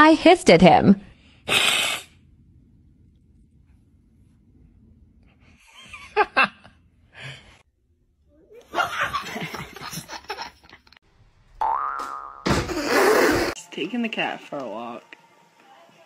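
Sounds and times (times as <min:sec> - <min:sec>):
young child giggling: 0:08.6 - 0:10.8.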